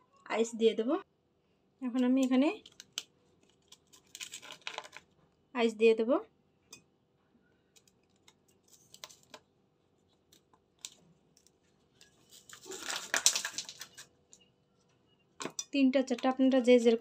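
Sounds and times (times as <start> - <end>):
ice cubes crackling rattle: 2.6 - 5.1, 12.0 - 14.1.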